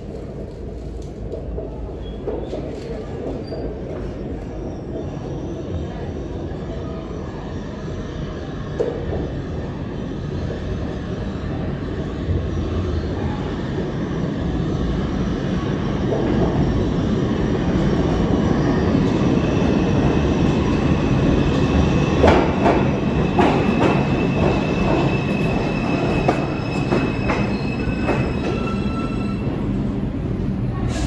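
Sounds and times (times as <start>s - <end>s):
train wheels rumbling: 8.6s - 31.0s
high wheel squeal: 23.9s - 29.6s.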